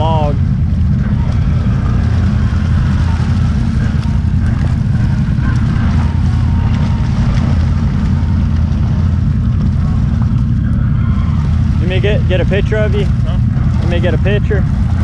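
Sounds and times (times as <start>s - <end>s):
quad engine running under load: 0.0s - 15.0s.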